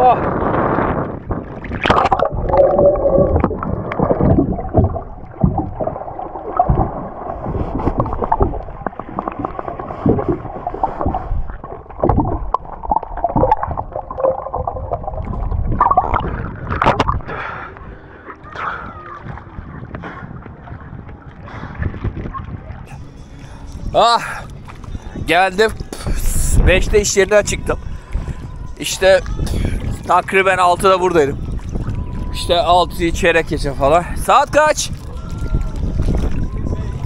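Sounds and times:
muffled underwater water gurgling: 0.0s - 27.0s
hand scrubbing boat hull underwater: 1.4s - 17.4s.

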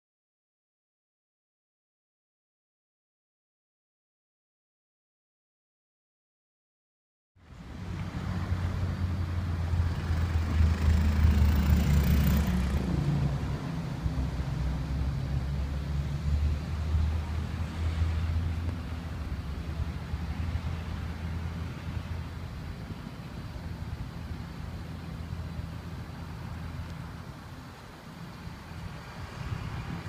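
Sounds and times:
tram equipment humming: 7.4s - 30.0s
wash of noise: 7.4s - 30.0s.

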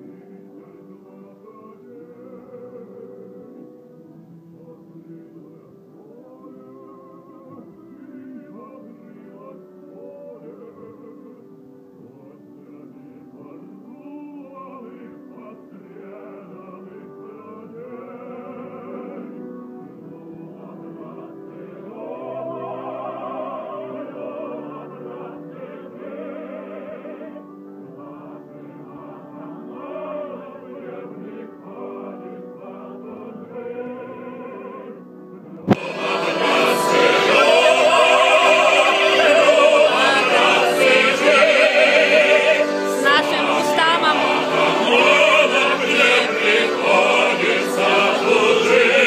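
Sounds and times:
men singing together: 35.7s - 49.0s.

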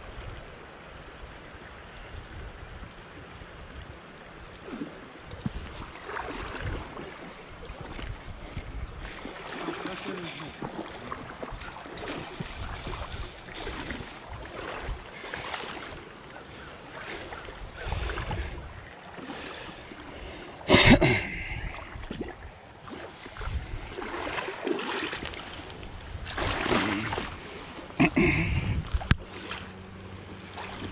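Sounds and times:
creek water rushing: 0.0s - 30.9s
wind buffeting microphone: 5.2s - 9.3s, 11.2s - 15.5s, 17.4s - 18.9s, 23.3s - 24.4s, 25.2s - 29.3s.

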